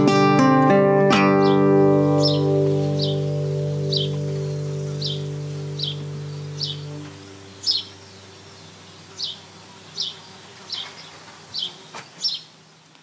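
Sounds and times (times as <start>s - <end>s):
faint song: 0.0s - 8.3s
faint high hiss: 0.0s - 13.0s
high chirps falling in pitch: 1.1s - 8.6s.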